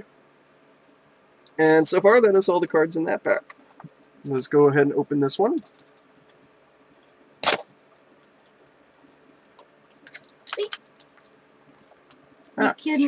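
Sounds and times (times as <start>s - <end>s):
packaging crackle: 9.4s - 12.6s.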